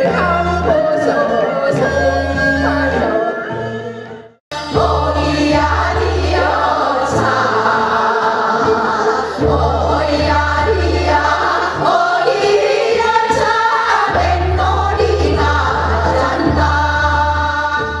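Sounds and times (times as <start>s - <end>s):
women and girls singing together: 4.6s - 18.0s.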